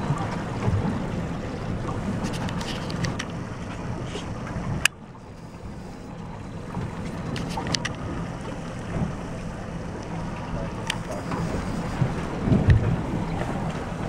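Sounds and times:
boat engine idling: 0.0 - 14.0
water against hull: 0.0 - 14.0
wind buffeting microphone: 6.5 - 14.0.

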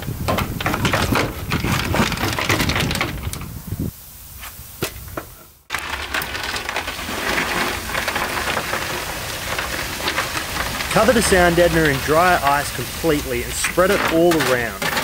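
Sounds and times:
dry ice tipped onto floor: 5.7 - 12.5, 13.6 - 15.0
dry ice crunching and cracking: 5.7 - 15.0.

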